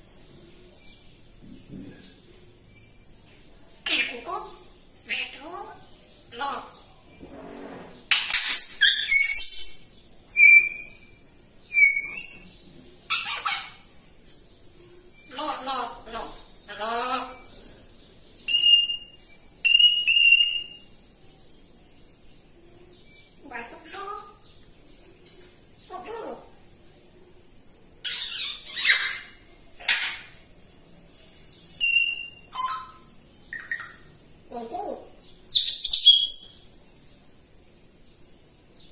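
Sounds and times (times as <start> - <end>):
parrot harsh calls: 13.1 - 13.8, 28.0 - 30.3.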